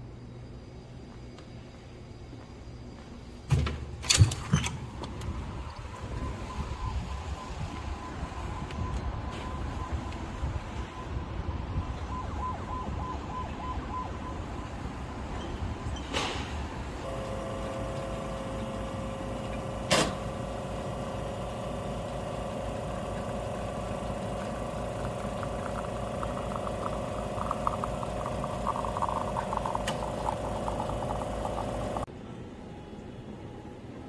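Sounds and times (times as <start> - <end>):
espresso machine pump humming: 17.0 - 32.1.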